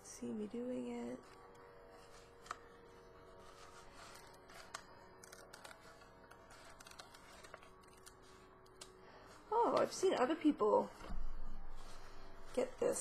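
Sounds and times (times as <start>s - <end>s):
low steady hum: 0.0s - 13.0s
plastic film peeling crackle: 1.3s - 9.0s.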